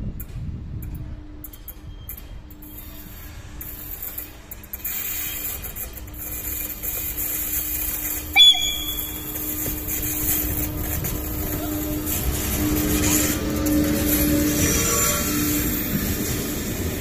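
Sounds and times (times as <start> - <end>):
electric locomotive hum: 0.0 - 17.0
train rumble: 0.0 - 17.0
train horn toot: 8.4 - 9.7.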